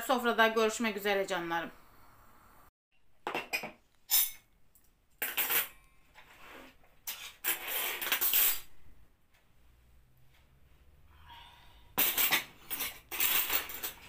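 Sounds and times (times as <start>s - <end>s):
tableware clinking and clattering: 3.2s - 4.4s, 5.2s - 5.8s, 12.0s - 14.0s.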